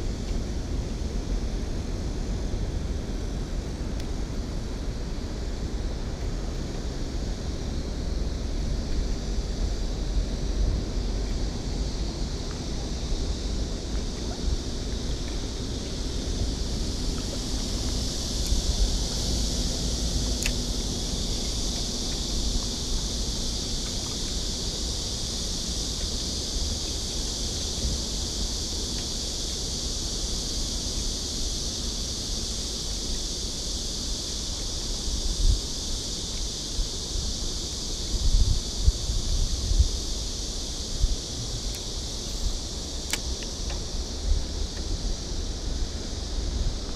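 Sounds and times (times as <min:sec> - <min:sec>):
steady high hiss: 0:00.0 - 0:46.9
wind rumbling on microphone: 0:00.0 - 0:46.9.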